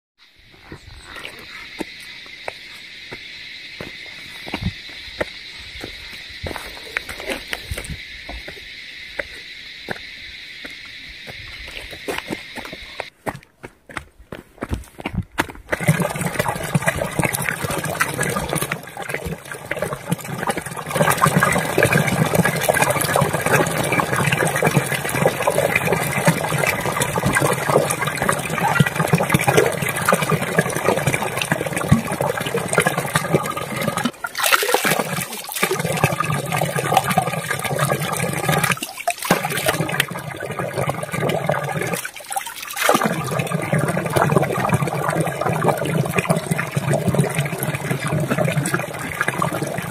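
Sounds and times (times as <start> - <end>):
water gushing from a pipe: 15.7 - 49.9
water splashing onto rocks: 34.0 - 36.0, 38.7 - 40.0.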